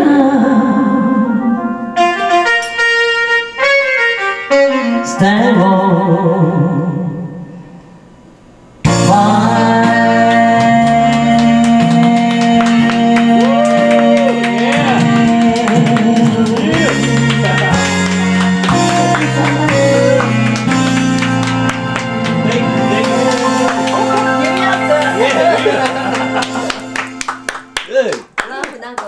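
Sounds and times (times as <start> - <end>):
woman singing karaoke: 0.0 - 1.6, 5.0 - 7.2, 8.9 - 21.0, 23.4 - 25.8
backing track music: 0.1 - 7.9, 8.8 - 28.1
loud music with bass line: 8.9 - 27.2.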